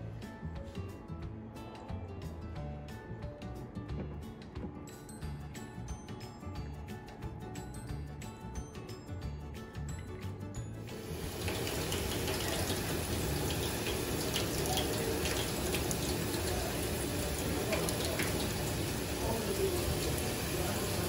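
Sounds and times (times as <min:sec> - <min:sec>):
water pouring from a hose: 0:10.9 - 0:21.0.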